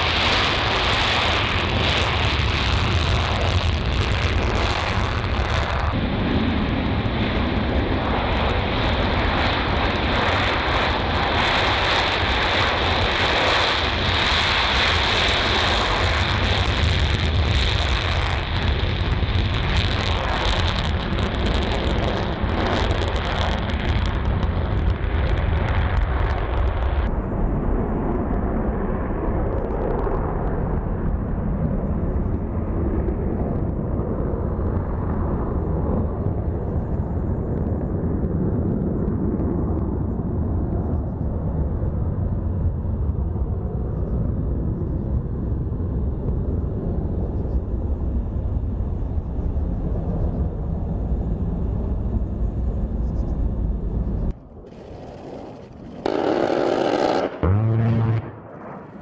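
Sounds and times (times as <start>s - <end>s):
jet engine low rumble: 0.0s - 59.0s.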